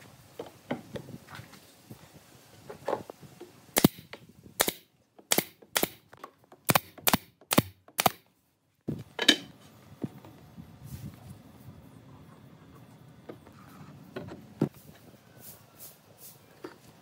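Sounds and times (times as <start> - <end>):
pneumatic nailer firing: 3.8 - 6.0, 6.7 - 8.2.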